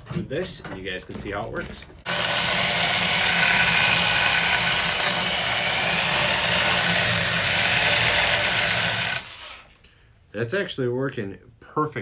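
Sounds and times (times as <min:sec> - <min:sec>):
drill motor whining: 0:02.1 - 0:09.7.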